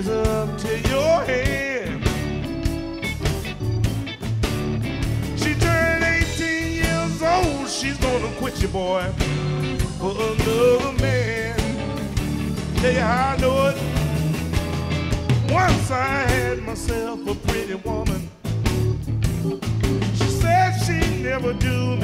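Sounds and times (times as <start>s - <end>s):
blues band playing: 0.0s - 22.0s
lead guitar bent notes: 0.2s - 16.8s.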